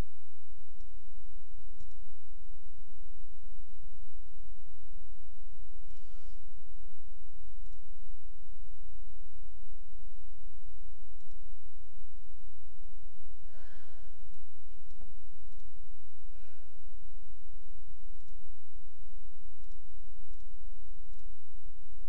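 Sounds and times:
steady low hum: 0.0s - 22.0s
computer mouse clicking: 1.6s - 2.0s, 7.6s - 7.8s, 11.2s - 11.4s, 14.3s - 15.7s, 18.1s - 18.4s, 19.6s - 20.5s
breathy sighs: 5.9s - 6.5s, 13.4s - 14.4s, 16.3s - 17.0s.

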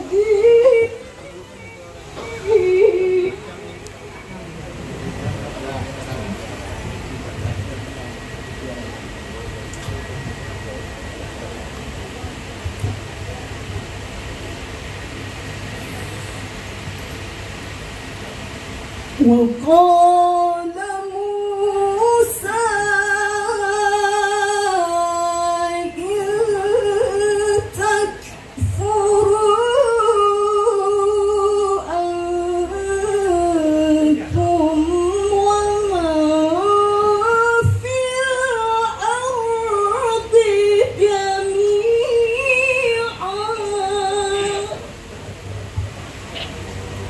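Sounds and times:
woman chanting recitation: 0.0s - 3.8s, 19.2s - 44.9s.

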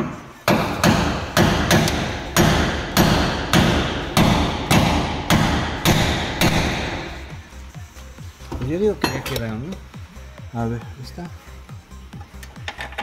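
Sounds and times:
hammer striking metal: 0.0s - 7.1s.

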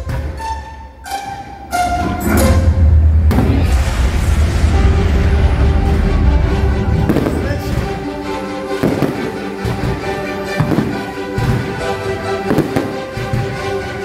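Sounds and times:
music: 0.0s - 14.0s
fireworks bursting: 3.3s - 14.0s.

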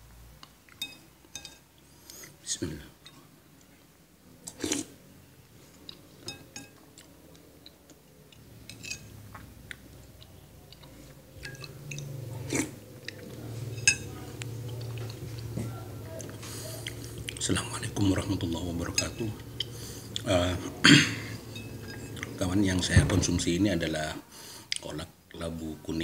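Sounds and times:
low steady hum: 0.0s - 26.0s
spoon clinking against dish: 0.7s - 1.6s, 6.2s - 6.8s, 8.6s - 9.2s, 11.4s - 12.2s, 13.6s - 17.4s, 18.1s - 20.2s, 20.9s - 22.4s
person chewing: 4.4s - 4.9s, 5.6s - 22.5s.

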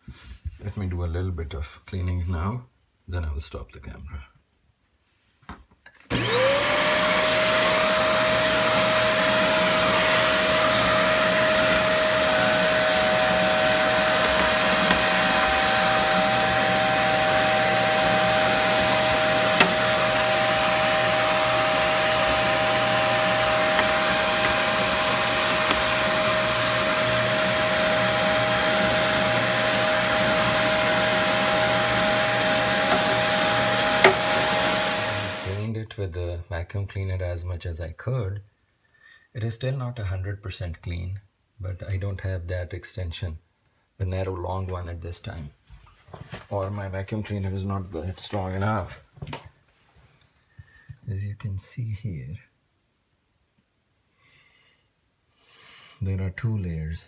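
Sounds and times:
vacuum cleaner running: 6.1s - 35.7s.

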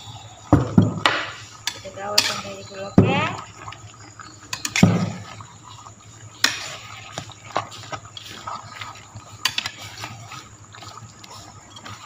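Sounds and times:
spatula scraping in wok: 1.4s - 3.4s, 4.5s - 12.0s.

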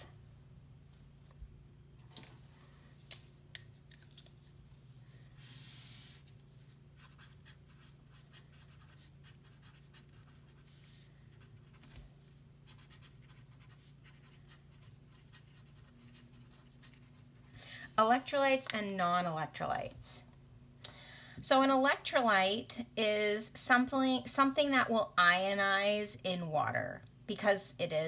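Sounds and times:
low steady hum: 0.0s - 28.0s
marker scratching on paper: 5.4s - 12.0s, 12.6s - 17.4s.

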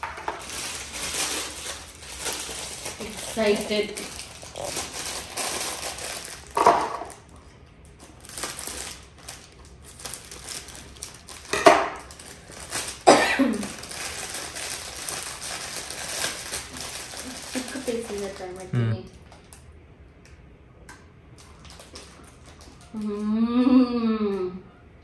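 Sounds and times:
cellophane bag crinkling: 0.0s - 19.7s, 21.4s - 23.2s.

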